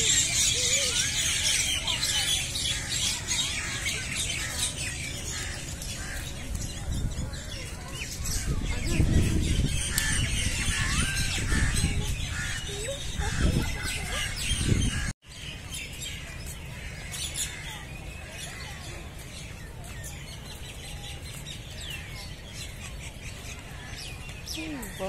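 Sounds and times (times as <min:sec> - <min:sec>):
small birds chirping: 0:00.0 - 0:25.0
wind rumble on microphone: 0:05.0 - 0:15.2.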